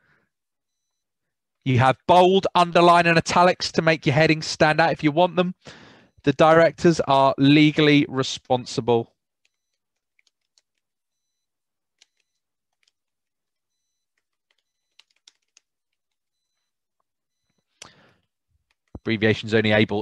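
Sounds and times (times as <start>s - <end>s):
typing on laptop keyboard: 9.4s - 11.0s, 11.9s - 16.3s.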